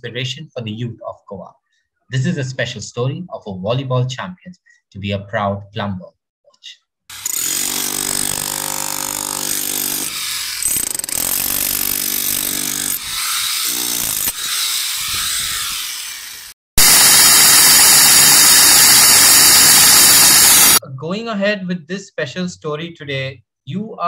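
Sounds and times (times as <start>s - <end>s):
power tool motor whine: 12.2s - 20.8s
loud rushing machine noise: 16.8s - 20.8s.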